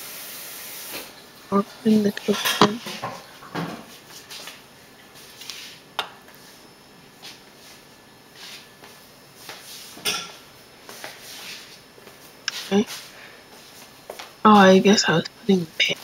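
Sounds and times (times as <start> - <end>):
soft scrapes and rustles: 5.2 - 5.8, 8.4 - 8.7, 10.9 - 13.9.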